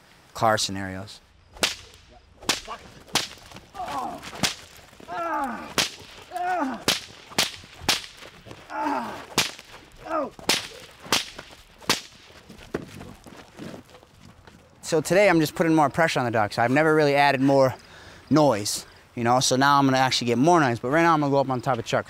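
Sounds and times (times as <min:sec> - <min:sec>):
whip cracking: 0:01.5 - 0:12.4.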